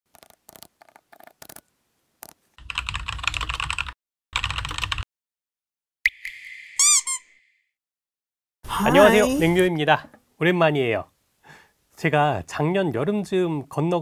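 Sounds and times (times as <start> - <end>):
mechanical keyboard typing: 0.2 - 1.6, 2.2 - 5.0.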